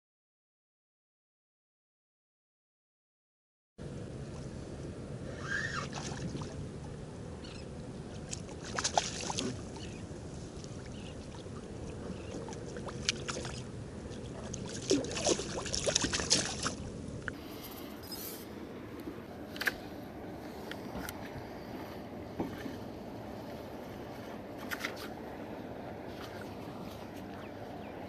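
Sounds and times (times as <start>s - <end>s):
steady low hum: 3.8s - 28.0s
small splashes: 5.6s - 6.6s, 8.1s - 10.0s, 10.6s - 17.0s
water sloshing around kayak: 5.8s - 17.4s.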